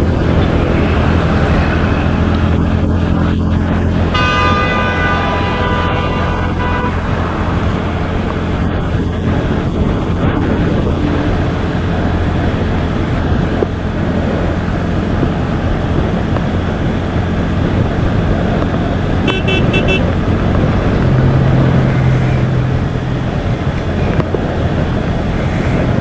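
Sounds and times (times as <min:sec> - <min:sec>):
road and wind rush: 0:00.0 - 0:26.0
vehicle horn short beeps: 0:04.1 - 0:09.0, 0:19.3 - 0:20.1.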